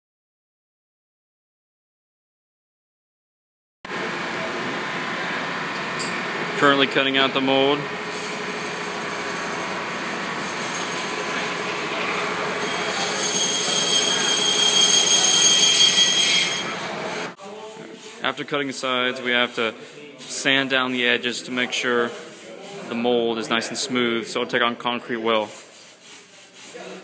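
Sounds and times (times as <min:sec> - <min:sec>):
band saw whirring: 0:04.0 - 0:17.4.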